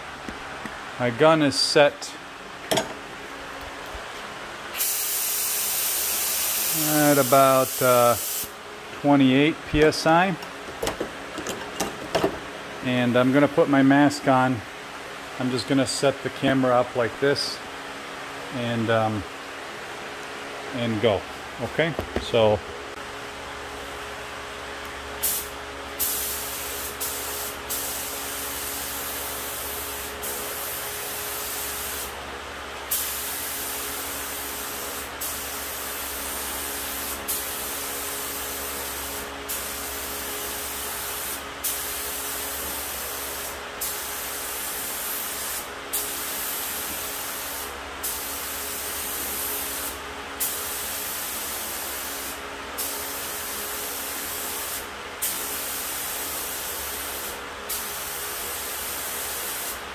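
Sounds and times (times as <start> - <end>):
spray gun hissing: 4.8 - 8.5, 25.2 - 32.2, 32.9 - 59.8.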